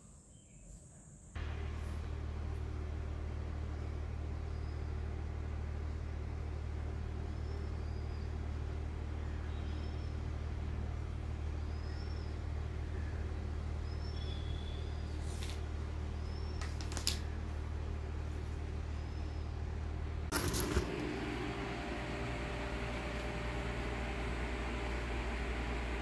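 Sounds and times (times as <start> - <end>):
steady low hum: 1.4 - 26.0
faint high chirps: 9.2 - 10.4, 11.4 - 15.5.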